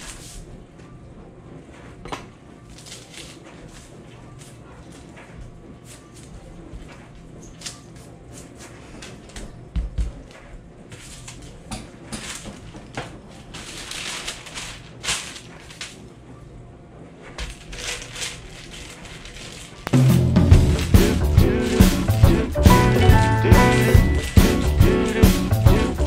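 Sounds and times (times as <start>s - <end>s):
parchment paper crinkling: 2.7s - 9.4s, 10.9s - 16.0s, 17.4s - 20.0s
music: 19.9s - 26.0s.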